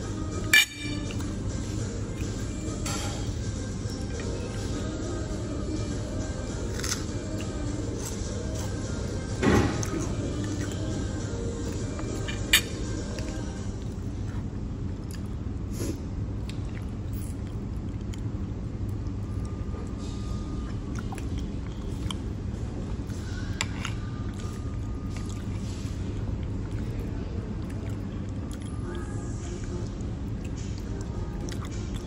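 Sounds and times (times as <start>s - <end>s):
low background rumble: 0.0s - 32.0s
fork clinking in ceramic bowl: 0.5s - 1.1s
chewing: 9.8s - 20.0s, 23.0s - 32.0s.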